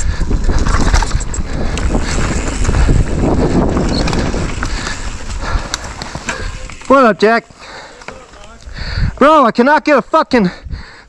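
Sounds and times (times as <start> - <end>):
wind buffeting microphone: 0.0 - 6.9, 8.5 - 9.2, 10.5 - 11.0
bike rattling over bumps: 0.0 - 9.4
bike tyres on dirt trail: 0.0 - 11.0.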